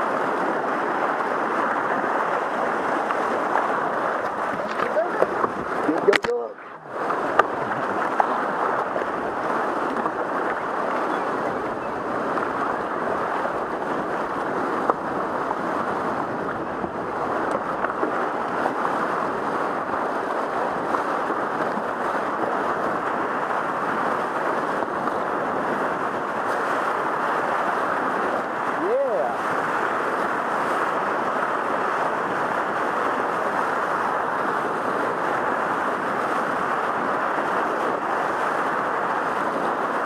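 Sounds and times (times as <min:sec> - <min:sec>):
whitewater rapids rushing: 0:00.0 - 0:40.0.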